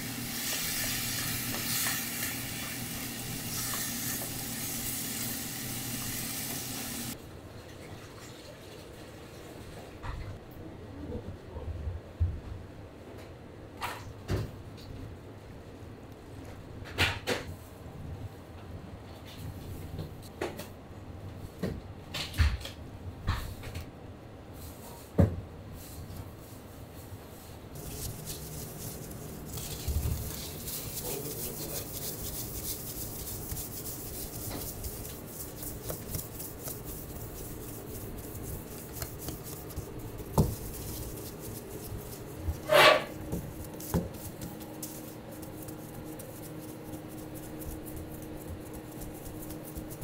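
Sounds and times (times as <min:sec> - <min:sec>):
dough rubbing on metal counter: 0:27.7 - 0:50.0.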